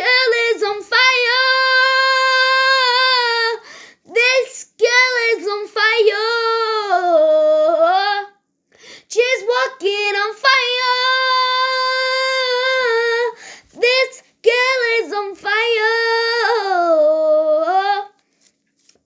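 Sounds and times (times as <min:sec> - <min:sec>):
girl singing unaccompanied: 0:00.0 - 0:08.4, 0:09.0 - 0:18.2.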